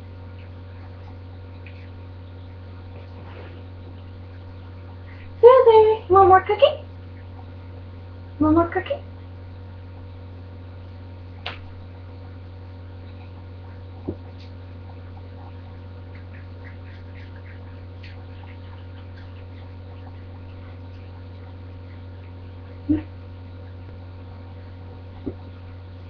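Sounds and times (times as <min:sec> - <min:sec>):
low electrical hum: 0:00.0 - 0:26.0
faint irregular ticks: 0:13.1 - 0:22.9.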